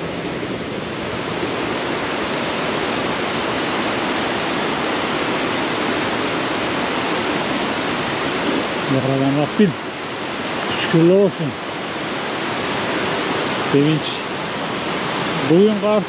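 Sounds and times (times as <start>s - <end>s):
rushing stream water: 0.0s - 16.0s.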